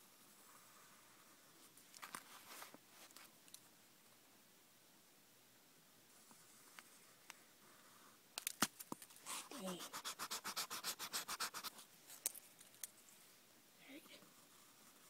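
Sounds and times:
rubbing on paper: 9.2s - 11.9s.

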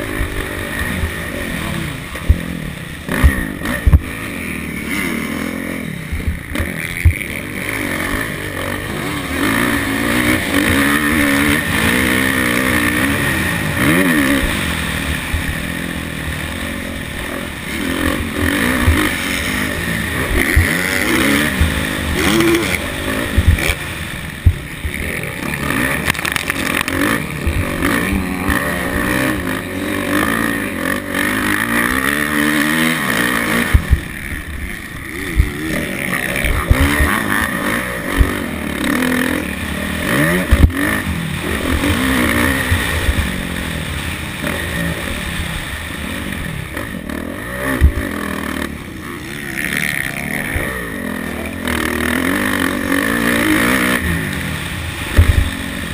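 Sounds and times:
motocross bike engine revving: 0.0s - 55.9s
bike knocking on ruts: 3.1s - 4.2s, 6.1s - 7.4s, 20.2s - 25.1s, 33.5s - 34.2s, 35.2s - 38.4s, 40.1s - 41.0s, 47.6s - 48.1s, 55.1s - 55.6s.

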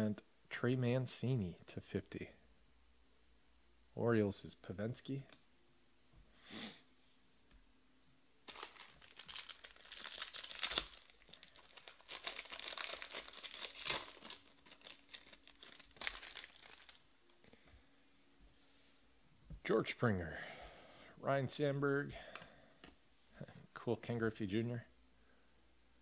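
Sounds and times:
foil wrapper crinkling: 8.5s - 17.1s.

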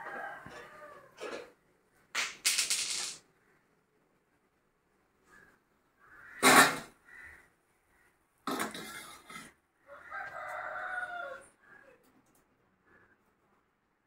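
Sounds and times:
rooster crowing: 0.0s - 1.2s, 9.9s - 12.0s.

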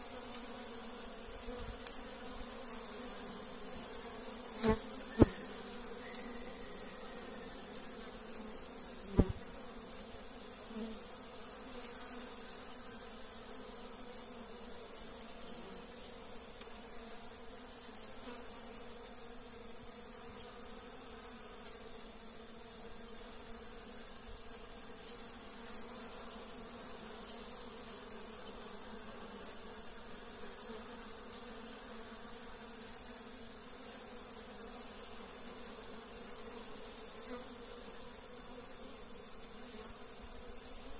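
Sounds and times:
bees buzzing: 0.0s - 40.9s.

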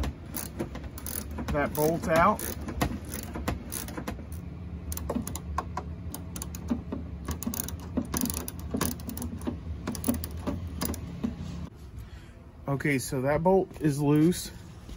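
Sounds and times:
hand ratchet clicking: 0.0s - 11.0s
steady low hum: 0.0s - 14.9s.

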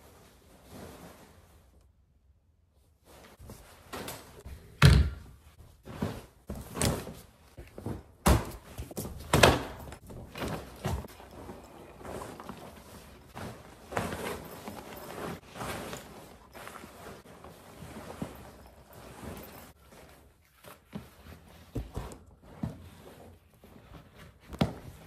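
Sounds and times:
rustling of bags and straps: 5.4s - 25.0s.

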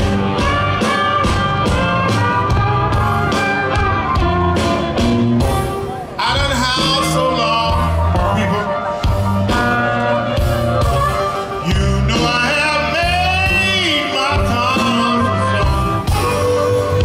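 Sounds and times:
electric guitar: 0.0s - 17.0s
steady bass line: 0.0s - 17.0s
person singing: 6.2s - 17.0s.

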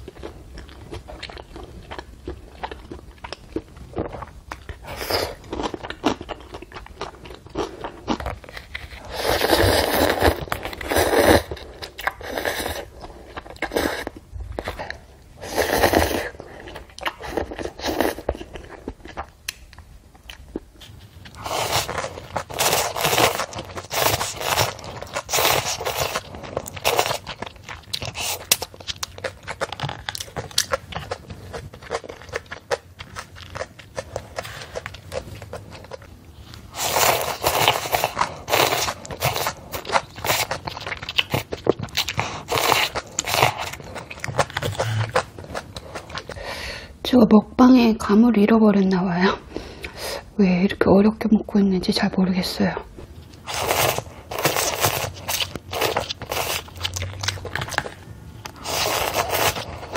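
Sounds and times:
chewing: 0.0s - 46.8s, 53.0s - 59.9s
slurping noodles: 8.8s - 14.2s, 15.4s - 18.6s, 21.4s - 27.3s, 36.7s - 40.6s, 53.4s - 56.8s, 58.6s - 59.9s.

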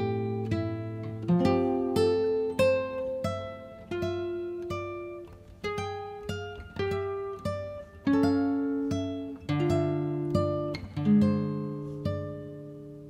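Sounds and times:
plucked guitar melody: 0.0s - 13.0s.

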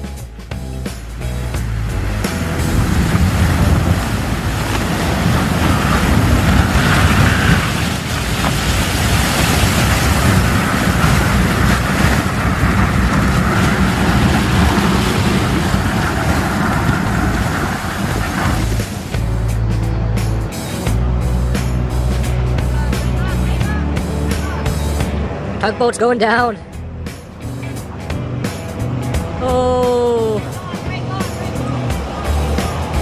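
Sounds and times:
wind buffeting microphone: 0.6s - 25.6s
sea ice grinding against ship: 1.7s - 19.3s.

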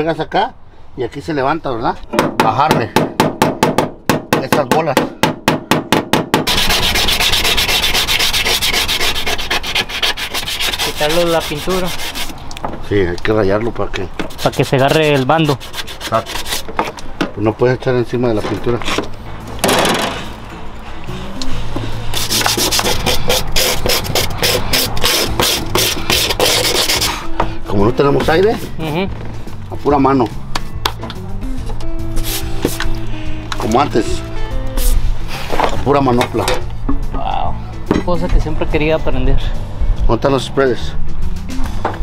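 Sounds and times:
hammer tapping sheet metal: 2.1s - 7.3s
hand sanding painted metal: 6.4s - 12.4s, 14.2s - 16.8s, 22.0s - 27.3s, 32.2s - 32.9s, 34.8s - 35.0s.

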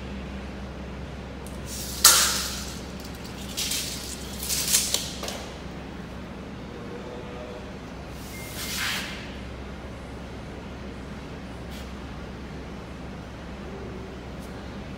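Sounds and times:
low machine hum: 0.0s - 14.9s.

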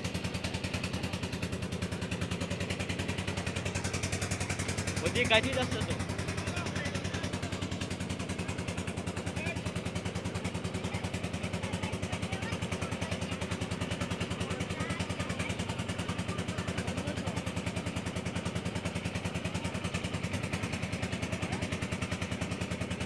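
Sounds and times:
boat engine chugging: 0.0s - 23.0s.

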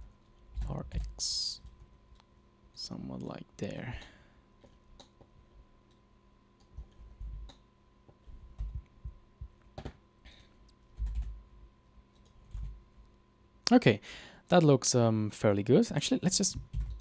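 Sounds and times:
faint electrical hum: 0.0s - 17.0s
computer keyboard and mouse clicks: 4.6s - 5.3s, 6.6s - 7.6s, 9.8s - 10.0s, 10.6s - 11.4s, 12.1s - 12.8s, 16.6s - 17.0s.

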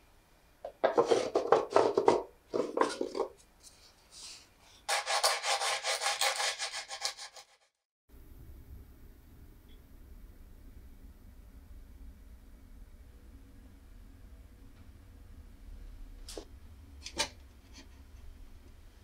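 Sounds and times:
sandpaper rasping on wood: 4.9s - 7.6s.

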